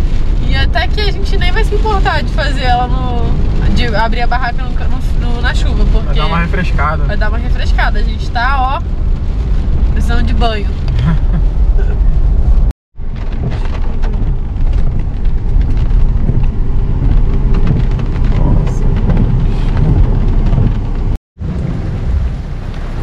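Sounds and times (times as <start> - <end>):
deep steady rumble: 0.0 - 23.0
heavy rain pelting a car: 0.0 - 23.0.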